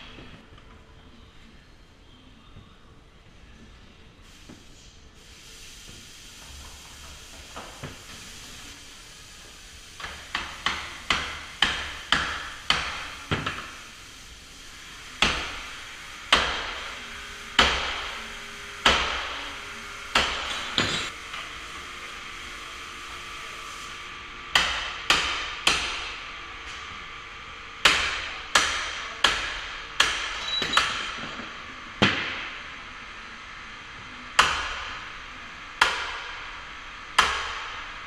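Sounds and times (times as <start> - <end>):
hammer striking steel: 27.8 - 31.4.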